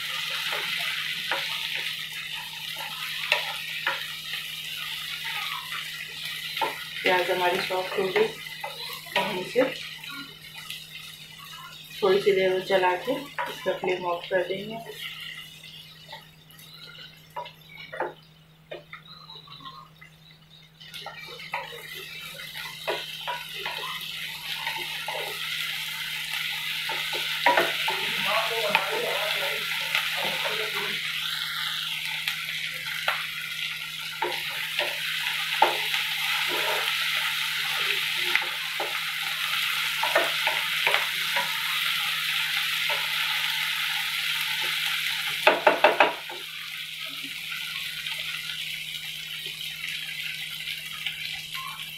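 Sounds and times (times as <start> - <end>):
vegetables sizzling in oil: 0.0 - 51.9
wooden spatula scraping a pan: 36.3 - 37.0.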